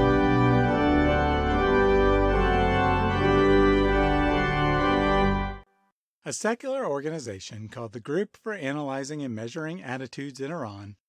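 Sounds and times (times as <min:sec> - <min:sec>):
organ playing sustained chords: 0:00.0 - 0:05.6.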